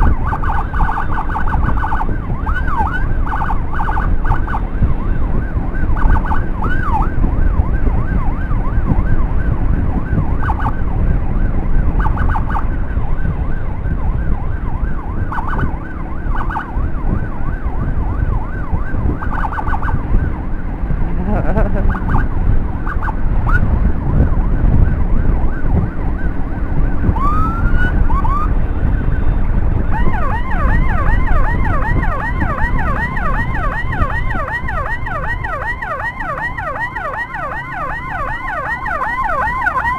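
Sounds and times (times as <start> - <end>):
electronic siren warbling and yelping: 0.0 - 9.2, 9.9 - 10.8, 11.8 - 12.8, 14.6 - 20.2, 21.2 - 39.9
wind noise: 0.0 - 39.9.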